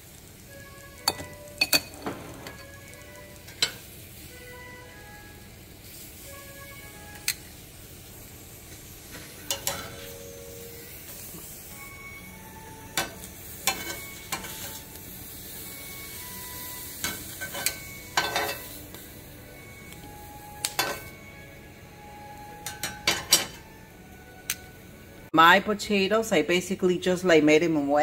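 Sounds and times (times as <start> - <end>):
vegetables sizzling on a griddle: 0.0 - 23.8
metal tongs clicking against pan: 1.0 - 2.7, 3.4 - 3.9, 7.1 - 7.5, 9.1 - 10.1, 13.0 - 14.8, 17.0 - 19.0, 20.6 - 21.1, 22.6 - 23.6.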